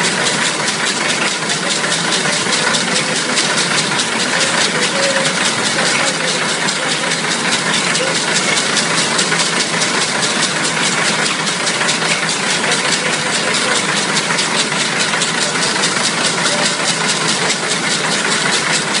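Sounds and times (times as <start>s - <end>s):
braiding machine clattering: 0.0s - 19.0s.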